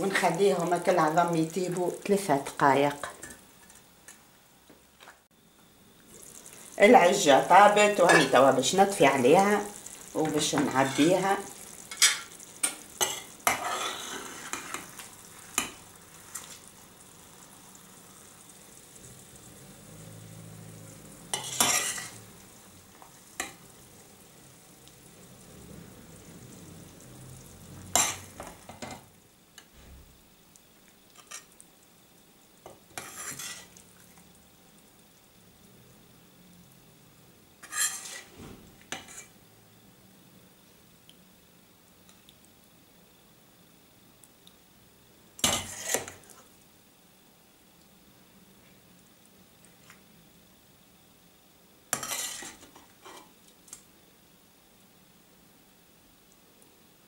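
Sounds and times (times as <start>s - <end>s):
sauce sizzling faintly: 0.0s - 57.0s
metal spoon scraping a pan: 7.6s - 8.5s, 11.9s - 16.7s, 21.3s - 22.3s, 27.9s - 29.0s, 31.2s - 31.5s, 32.9s - 33.8s, 37.6s - 38.3s, 38.9s - 39.4s, 45.4s - 46.5s, 51.9s - 53.3s.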